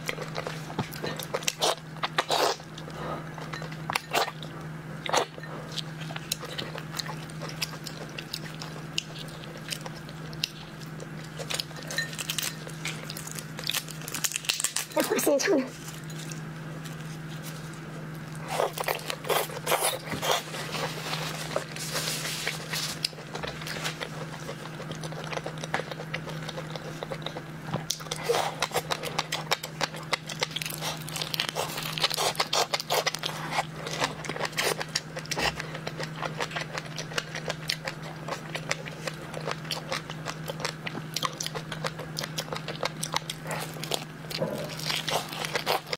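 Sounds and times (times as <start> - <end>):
shrimp shells crunching: 11.3 - 15.0.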